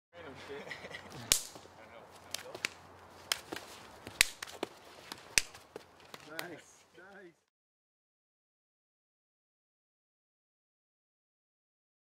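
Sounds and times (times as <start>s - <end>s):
sharp cracks: 1.2s - 1.7s, 2.3s - 6.6s.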